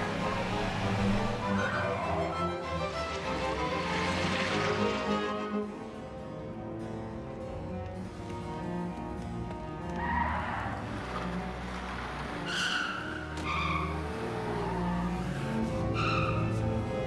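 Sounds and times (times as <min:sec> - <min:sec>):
car tyres squealing: 0:09.8 - 0:17.0.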